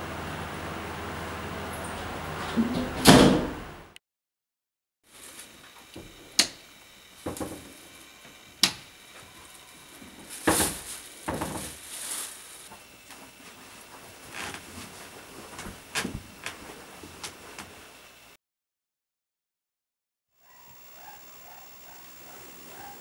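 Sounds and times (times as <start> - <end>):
soft knocks and rustles: 10.0 - 17.8.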